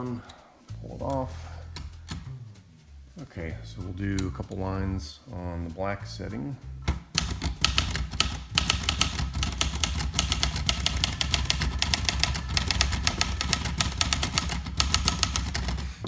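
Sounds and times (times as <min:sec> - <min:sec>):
typewriter typing fast: 0:07.2 - 0:16.0.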